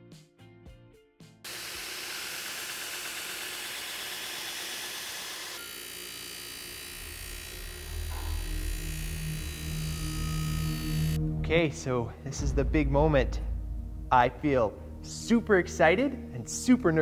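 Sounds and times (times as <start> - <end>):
belt grinder sanding steel: 1.5 - 11.2
buffing wheel motor humming: 1.5 - 11.2.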